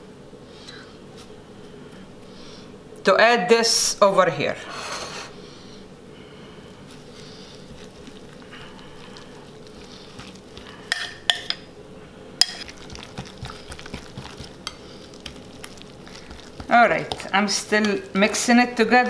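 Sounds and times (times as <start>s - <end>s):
whisk stirring wet sauce: 6.9s - 11.0s, 12.4s - 18.7s.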